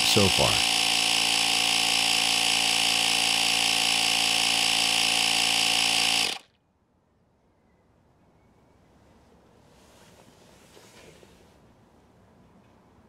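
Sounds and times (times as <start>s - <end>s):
tire inflator compressor running: 0.0s - 6.6s.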